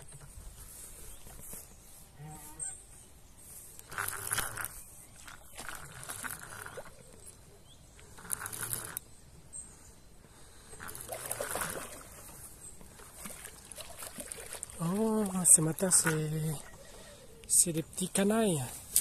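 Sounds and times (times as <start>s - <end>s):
fish splashing in water: 10.8s - 17.1s.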